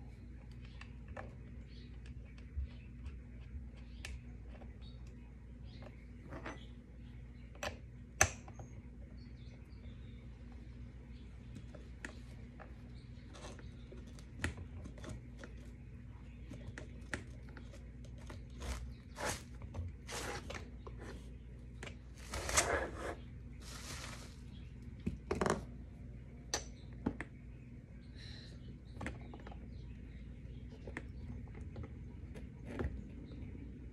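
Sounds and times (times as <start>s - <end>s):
rustling: 22.1s - 24.8s.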